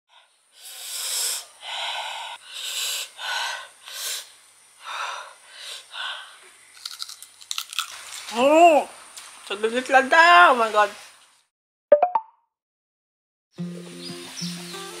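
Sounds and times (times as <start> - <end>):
crunchy bites into fruit: 6.7 - 8.4.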